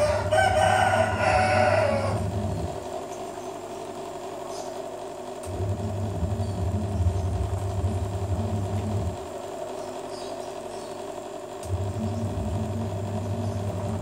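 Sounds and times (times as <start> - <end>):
vehicle engine rumbling: 0.0 - 3.2, 5.4 - 9.4, 11.6 - 14.0
steady background hum: 0.0 - 14.0.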